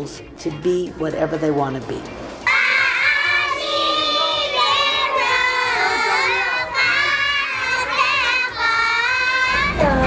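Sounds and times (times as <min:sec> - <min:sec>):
girls chanting in unison: 0:02.4 - 0:10.0.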